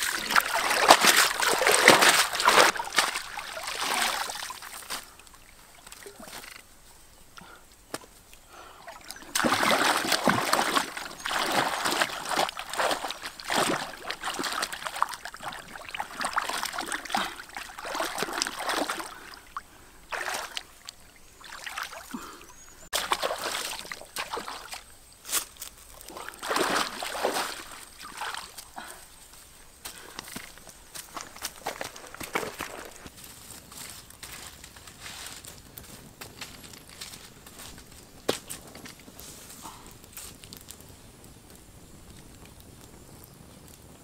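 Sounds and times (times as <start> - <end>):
shallow water splashing: 0.0 - 6.6, 8.6 - 25.0, 26.0 - 29.0.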